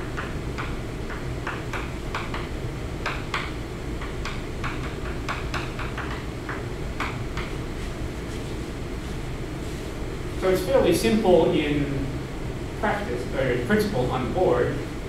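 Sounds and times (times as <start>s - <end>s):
steady low hum: 0.0s - 15.0s
chalk tapping on blackboard: 0.2s - 8.6s.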